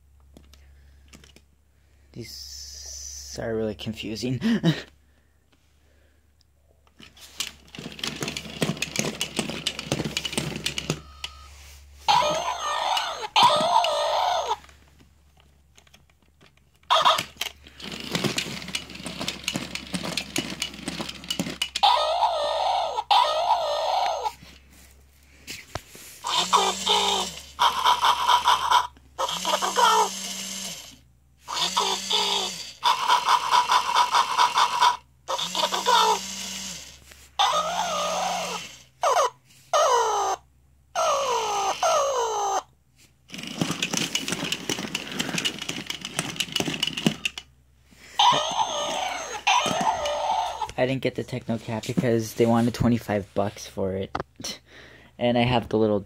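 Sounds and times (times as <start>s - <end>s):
plastic gear motors clicking: 7.0s - 11.5s, 12.1s - 14.7s, 15.4s - 22.4s, 26.2s - 38.7s, 43.3s - 47.5s, 48.2s - 50.8s
electronic falling yelp: 12.1s - 14.6s, 48.2s - 50.9s.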